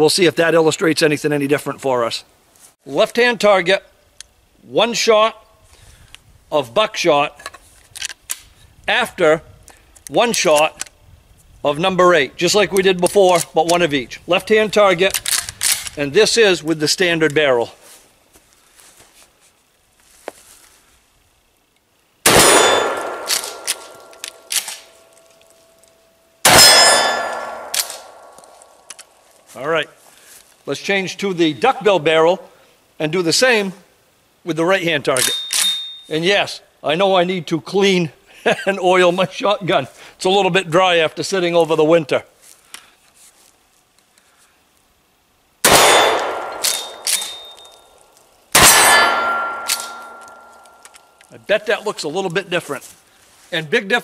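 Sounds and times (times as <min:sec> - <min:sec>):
steel plate ringing: 0:22.3 - 0:24.5, 0:26.5 - 0:28.4, 0:35.3 - 0:36.1, 0:45.7 - 0:48.0, 0:48.6 - 0:51.2
shotgun blasts: 0:22.3 - 0:24.6, 0:26.4 - 0:28.4, 0:45.6 - 0:47.5, 0:48.6 - 0:50.5.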